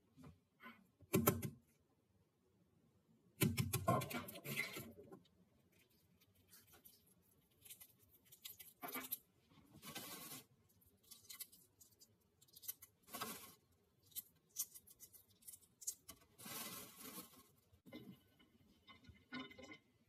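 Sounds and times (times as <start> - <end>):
eggshell cracking and scratching: 3.6 - 17.8.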